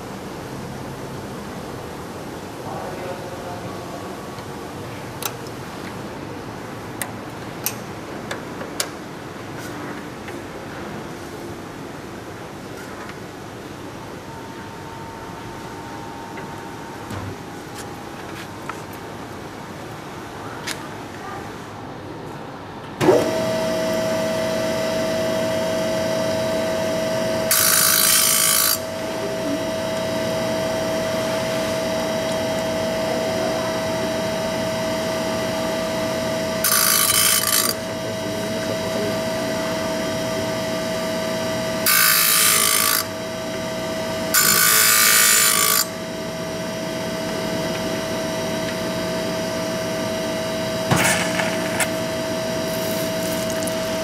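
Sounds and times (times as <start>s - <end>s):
grinding wheel whining: 47.4s - 54.0s.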